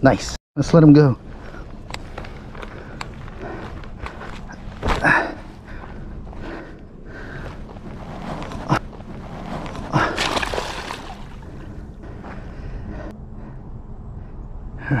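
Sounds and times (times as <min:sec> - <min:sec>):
fish splashing into water: 0:10.1 - 0:11.4.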